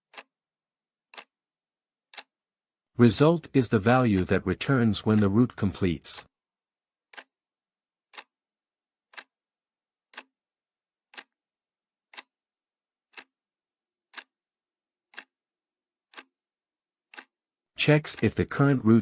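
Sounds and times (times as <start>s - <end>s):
clock ticking: 0.0s - 0.4s, 1.1s - 1.4s, 2.1s - 2.4s, 3.0s - 6.3s, 7.1s - 7.4s, 8.1s - 8.4s, 9.0s - 9.4s, 10.0s - 10.4s, 11.0s - 11.4s, 12.0s - 12.4s, 13.0s - 13.4s, 14.0s - 14.4s, 15.0s - 15.4s, 16.0s - 19.0s.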